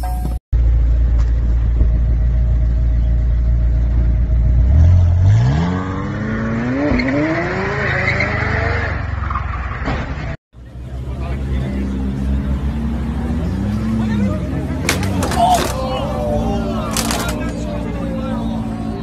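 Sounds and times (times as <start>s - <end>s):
tyres screeching: 14.8s - 17.9s.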